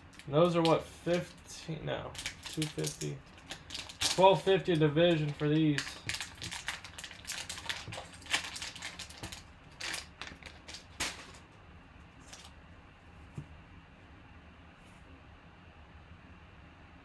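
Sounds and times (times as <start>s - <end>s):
foil wrapper crinkling: 2.1s - 11.4s.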